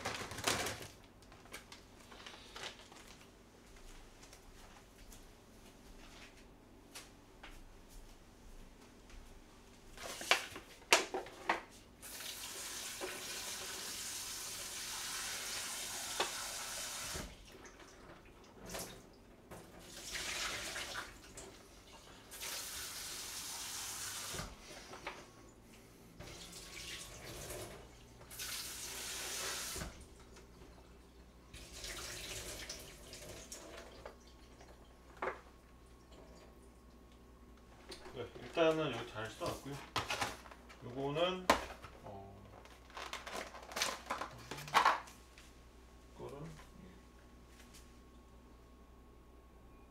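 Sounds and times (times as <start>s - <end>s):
kitchen tap running: 12.0s - 19.0s, 19.8s - 24.6s, 26.2s - 35.4s.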